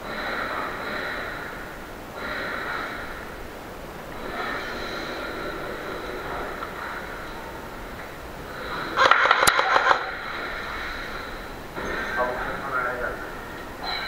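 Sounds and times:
person breathing noisily: 0:10.2 - 0:11.8.

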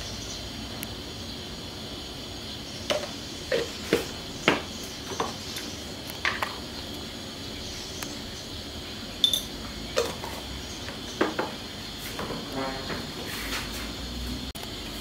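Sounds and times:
steady background hiss: 0:00.0 - 0:15.0
spoon clinking on metal ladle: 0:09.2 - 0:09.5.

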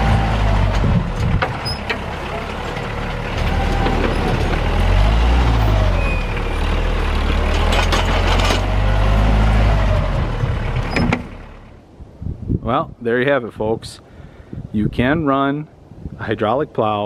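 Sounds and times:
tractor diesel engine running: 0:00.0 - 0:11.8.

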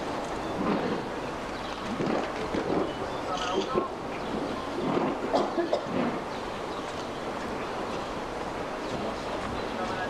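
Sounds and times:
dense crowd murmuring: 0:00.0 - 0:10.0
voices standing out: 0:08.8 - 0:10.0.

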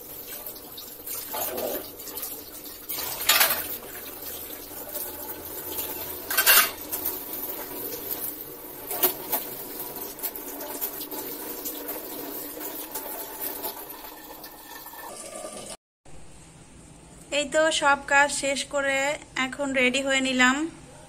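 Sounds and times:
dishes clattering in metal sink: 0:00.0 - 0:11.9.

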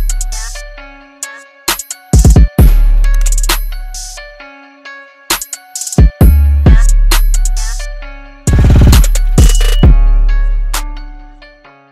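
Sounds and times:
drum-machine hits: 0:02.2 - 0:02.8, 0:08.5 - 0:10.1.

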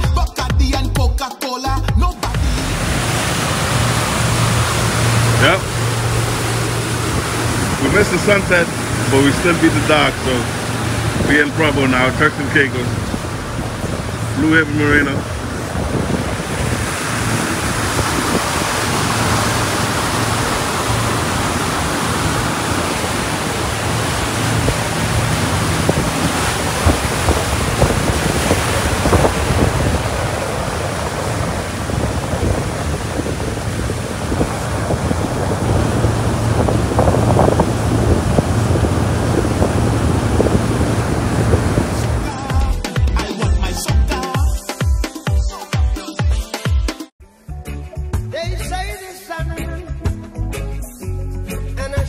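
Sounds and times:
low engine hum: 0:01.8 - 0:42.9
water rushing past hull: 0:02.2 - 0:44.3
wind buffeting microphone: 0:02.4 - 0:42.5.

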